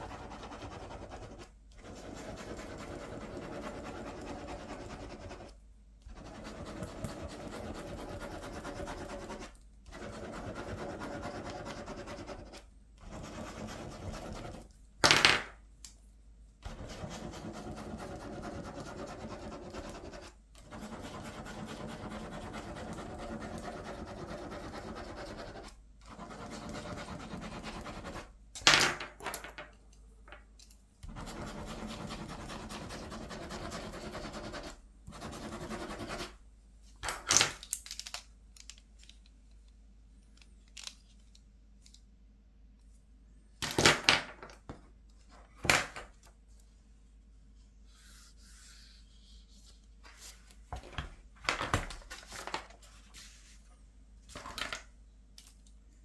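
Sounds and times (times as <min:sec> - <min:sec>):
ballpoint pen scribbling on paper: 0:00.0 - 0:14.7, 0:16.6 - 0:28.3, 0:31.0 - 0:36.4.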